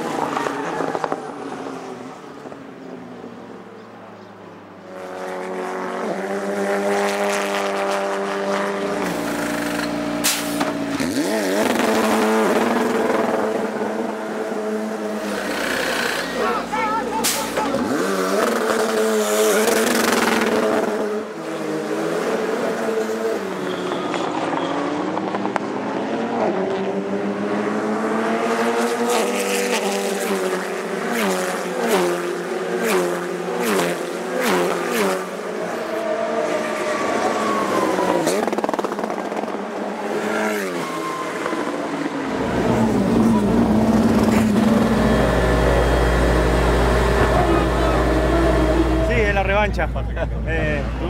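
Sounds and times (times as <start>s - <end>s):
racing car engines revving: 0.0s - 51.0s.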